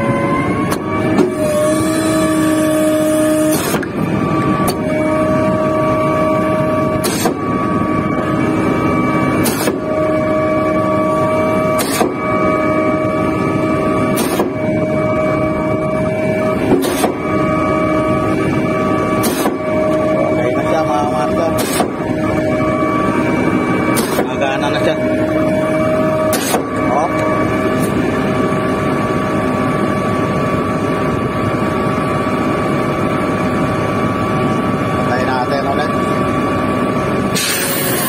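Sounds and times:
hydraulic pump whine: 0.0 - 38.0
pumping cylinders clacking: 23.9 - 24.9.

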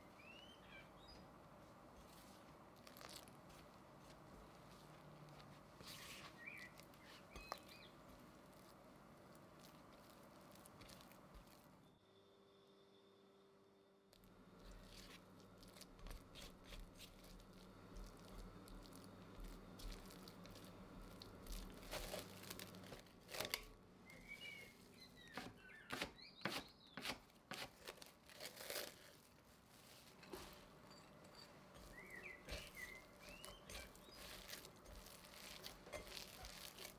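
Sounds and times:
wet dough tearing: 2.7 - 3.7, 6.3 - 11.8, 14.6 - 23.7, 27.5 - 29.4, 31.8 - 36.9.

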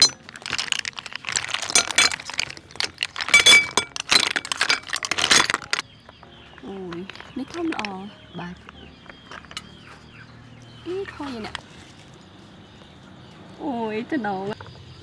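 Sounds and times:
snail shells clinking on a plate: 0.0 - 9.9.

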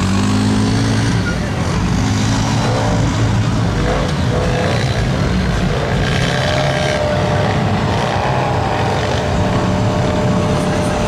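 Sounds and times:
off-road vehicle engines running: 0.0 - 11.0.

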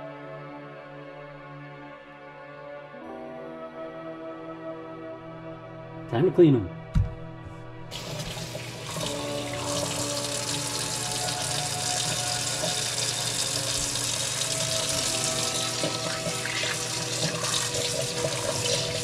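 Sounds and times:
tap water running into sink: 7.9 - 19.0.

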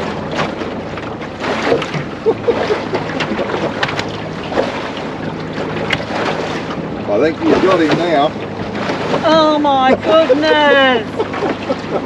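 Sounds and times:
clicks and knocks on boat: 0.0 - 9.6
outboard motor running: 0.0 - 12.0.

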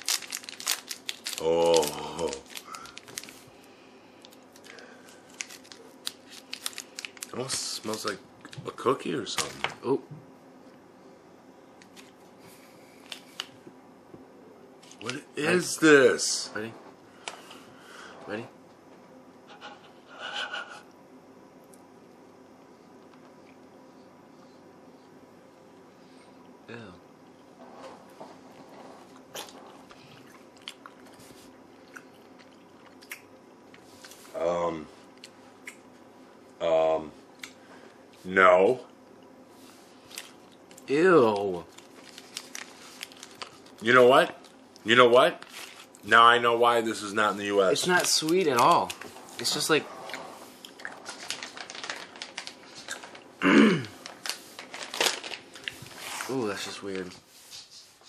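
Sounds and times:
chewing dried snack: 0.0 - 3.5, 29.0 - 34.3, 40.1 - 44.6, 48.0 - 53.3
plastic packaging crinkling: 0.0 - 9.8, 40.0 - 57.2.

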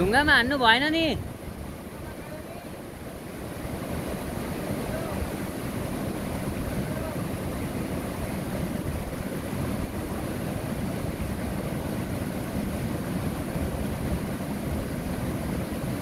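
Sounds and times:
river rushing over rapids: 0.0 - 16.0.

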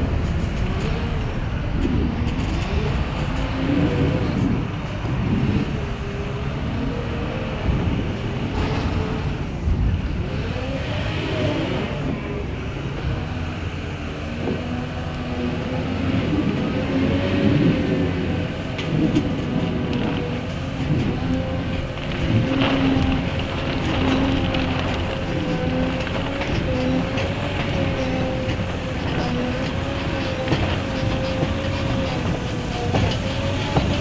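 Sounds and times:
diesel engine working hard: 0.0 - 34.0
low rumble: 7.6 - 10.7.

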